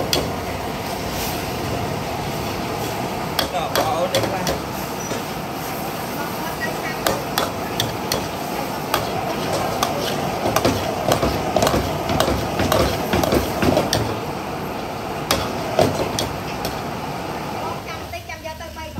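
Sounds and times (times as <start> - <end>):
frying hiss: 0.0 - 18.9
metal ladle clanking on wok: 3.3 - 5.3, 7.0 - 14.2.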